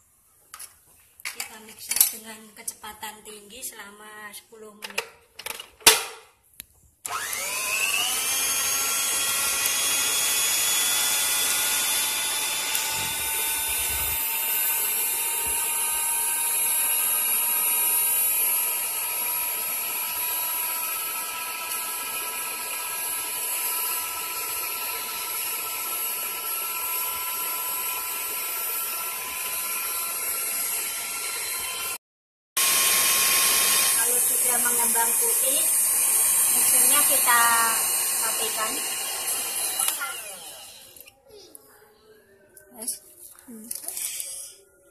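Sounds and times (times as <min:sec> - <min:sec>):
stand mixer motor whining: 0:07.1 - 0:32.0, 0:32.6 - 0:41.1.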